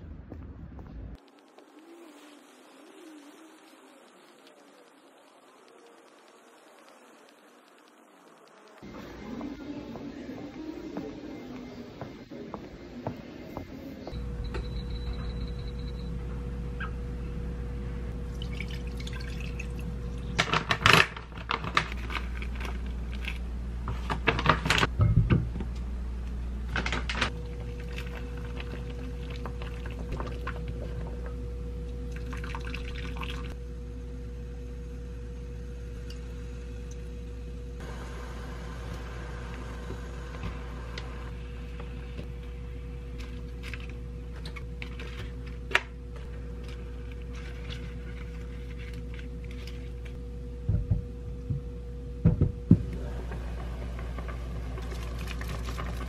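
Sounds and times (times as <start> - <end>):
steady hum: 0.0 - 56.0.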